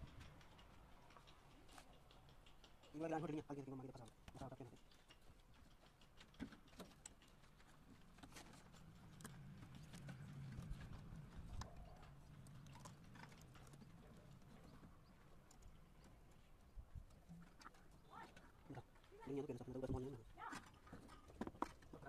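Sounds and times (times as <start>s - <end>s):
metallic clicks and taps of wire: 0.0s - 16.5s.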